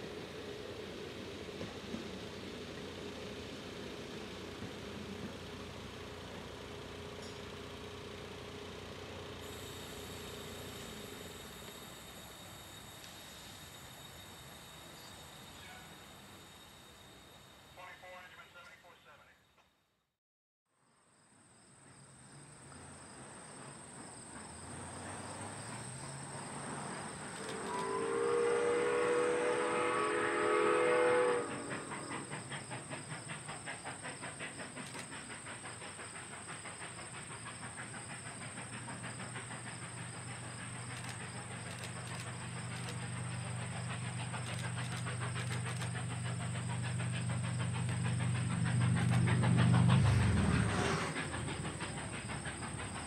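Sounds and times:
locomotive exhaust chuffs: 0.0 - 17.7, 22.8 - 53.0
train running noise: 0.0 - 19.4, 21.6 - 53.0
steam locomotive whistle: 9.4 - 18.5, 27.2 - 32.5.

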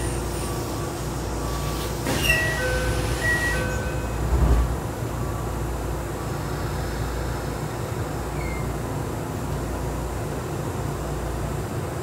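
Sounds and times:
two-tone door chime: 0.0 - 4.3
train running hum: 0.0 - 12.0.

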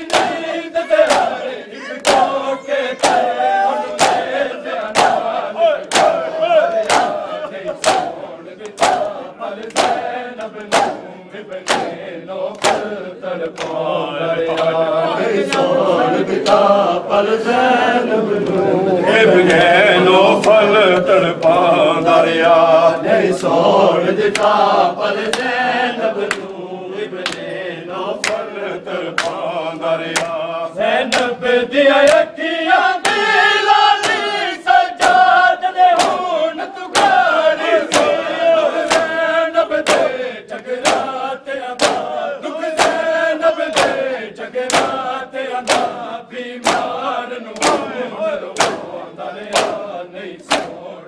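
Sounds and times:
hands slapping chests: 0.0 - 14.8, 15.4 - 15.7, 24.2 - 24.6, 25.2 - 25.6, 26.2 - 26.6, 27.2 - 27.5, 28.2 - 28.5, 29.1 - 30.4, 31.0 - 31.4, 33.0 - 33.3, 34.0 - 34.4, 35.0 - 43.1, 43.7 - 47.0, 47.6 - 50.9
men chanting in unison: 0.0 - 51.0.

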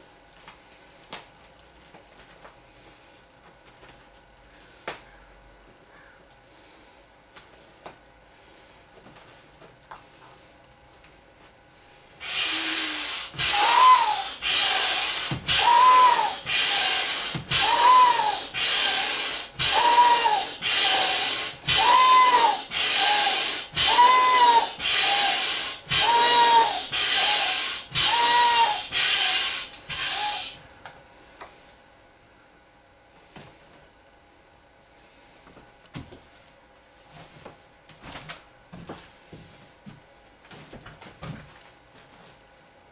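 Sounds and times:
hand air pump strokes: 12.2 - 30.6
short rising-and-falling whistle: 13.5 - 14.4, 15.6 - 16.4, 17.6 - 18.5, 23.8 - 24.6.

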